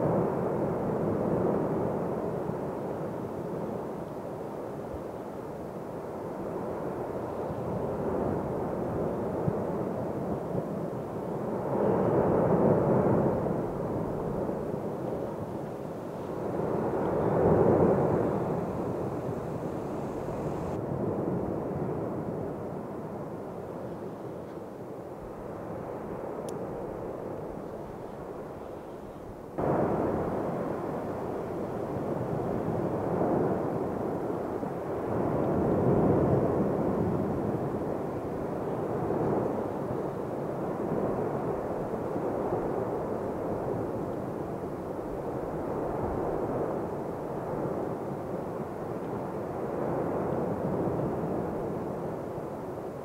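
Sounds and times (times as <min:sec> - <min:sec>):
volcano rumbling rush: 0:16.2 - 0:21.7.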